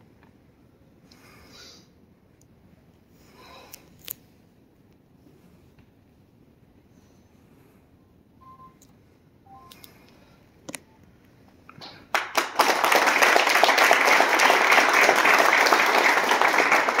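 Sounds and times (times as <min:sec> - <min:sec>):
audience clapping: 0:11.8 - 0:17.0.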